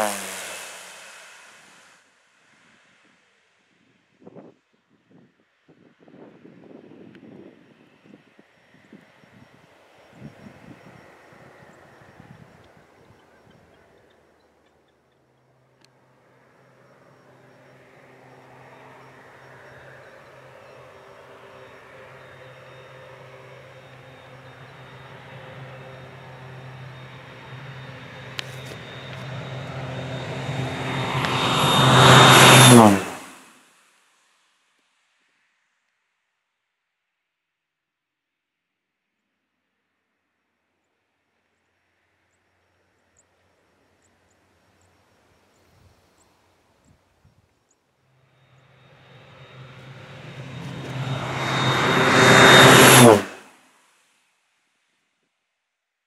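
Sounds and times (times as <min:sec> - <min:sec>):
turboprop plane engine droning: 0:00.0 - 0:02.0, 0:06.1 - 0:33.6, 0:48.3 - 0:53.5.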